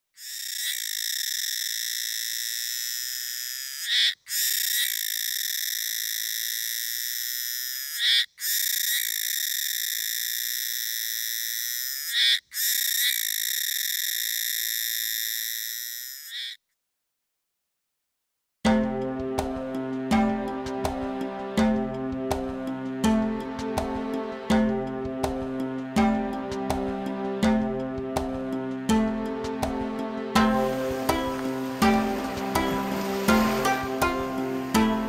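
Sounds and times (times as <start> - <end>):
cicada buzzing: 0.1 - 16.6, 30.4 - 35.0.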